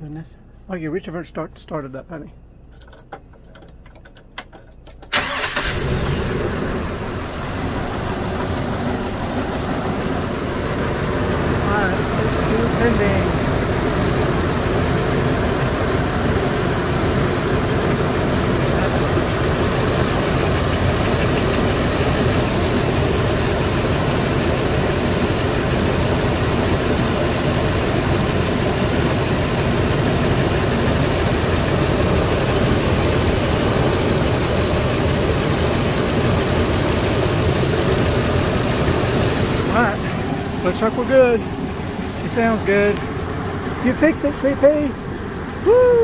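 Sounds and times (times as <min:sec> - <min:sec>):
car engine idling: 0:05.1 - 0:46.0.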